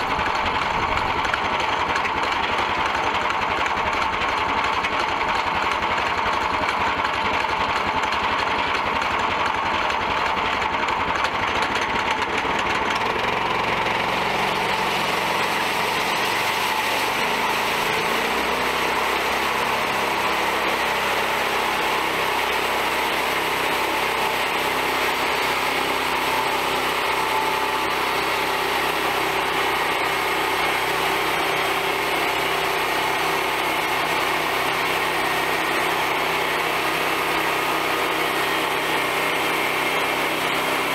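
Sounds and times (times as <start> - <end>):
small gasoline engine running: 0.0 - 40.9
band saw cutting log: 11.3 - 40.9.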